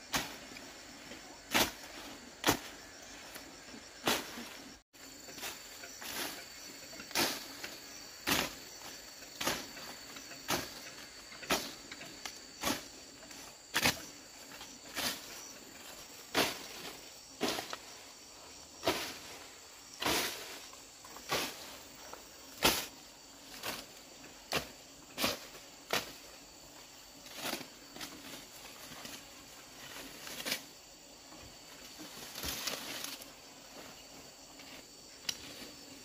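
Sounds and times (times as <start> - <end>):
hoe striking ground: 0.0 - 4.7, 5.3 - 17.9, 18.8 - 19.4, 22.5 - 23.9
insects chirping: 0.0 - 36.0.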